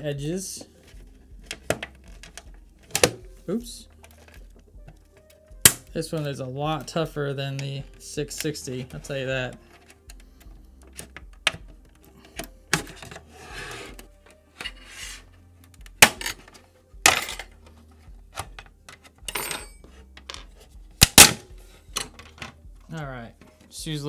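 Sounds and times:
plastic clips snapping: 4.0s - 5.9s.

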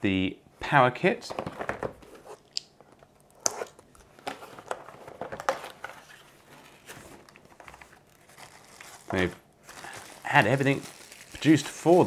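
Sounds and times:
packaging rustling: 3.7s - 12.0s.

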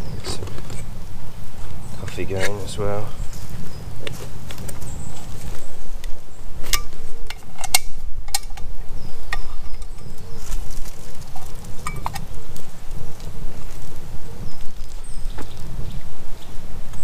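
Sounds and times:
camp cooking gear clinking: 6.6s - 12.7s.

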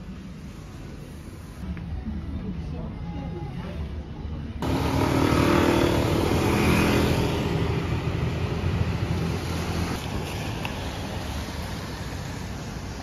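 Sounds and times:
vehicle engine passing: 4.6s - 10.0s.

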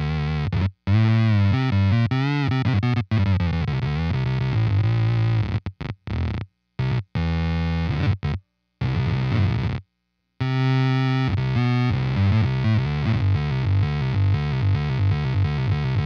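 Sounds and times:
buzzy synth-like electric guitar: 0.0s - 9.8s, 10.4s - 16.0s.

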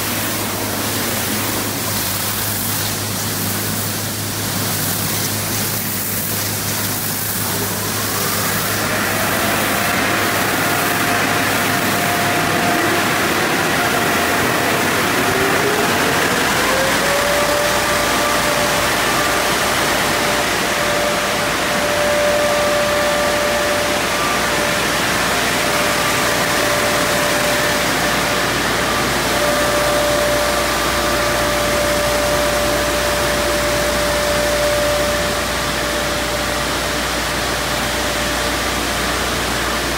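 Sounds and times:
water spray hissing: 0.0s - 16.6s
blower motors whining: 0.0s - 39.9s
rush of air and water: 0.0s - 39.9s.

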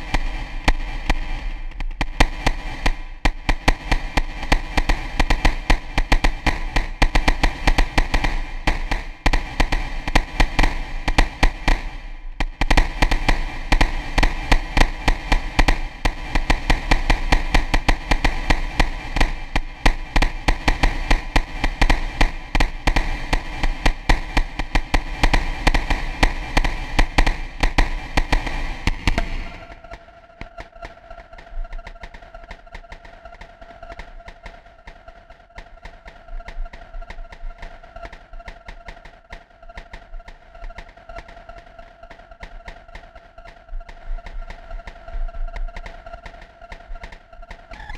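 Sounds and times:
low drone: 13.1s - 38.6s.

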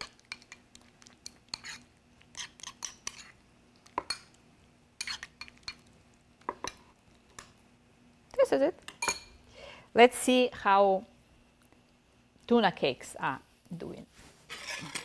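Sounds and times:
metal utensil scraping a bowl: 1.5s - 3.4s, 14.5s - 15.0s.

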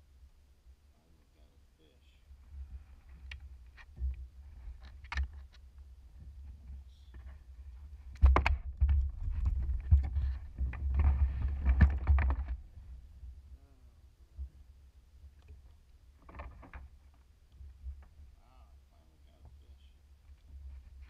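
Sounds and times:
thumps and knocks on plastic hull: 8.2s - 12.6s.

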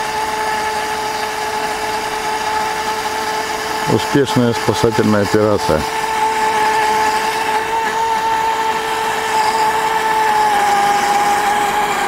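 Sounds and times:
electric motor whining: 0.0s - 12.0s.

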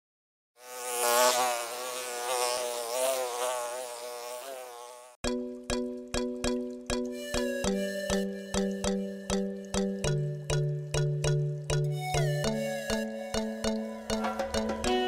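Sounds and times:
bee buzzing: 0.6s - 5.2s
music with struck notes: 5.3s - 15.0s.

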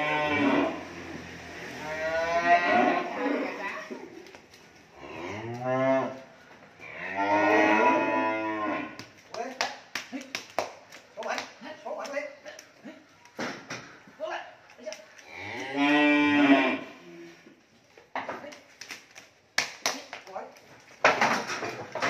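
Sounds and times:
cattle mooing: 0.0s - 3.8s, 6.8s - 8.9s, 15.3s - 17.0s.

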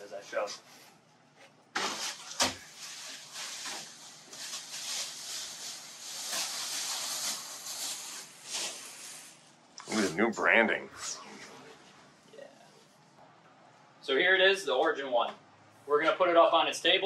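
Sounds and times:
plastic wrap rustling and crinkling: 1.8s - 10.1s.

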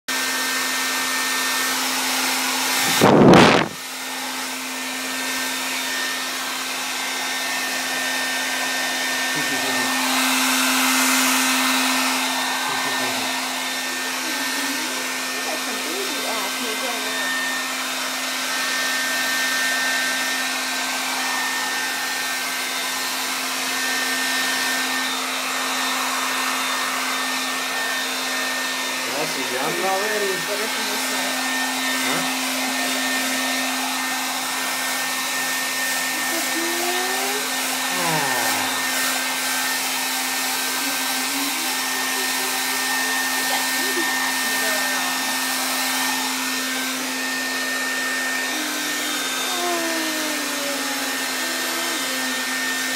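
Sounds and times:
hair dryer blowing: 0.1s - 52.9s.

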